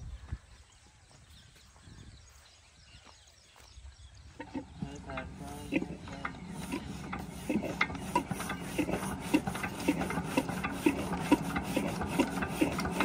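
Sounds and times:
diesel engine knocking: 0:04.4 - 0:13.0
water pump hum: 0:04.4 - 0:13.0.

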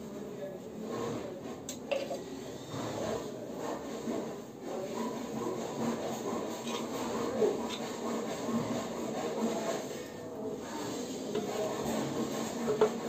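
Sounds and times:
rubbing and scraping on plastic valve: 0:01.9 - 0:10.0, 0:11.2 - 0:13.0.

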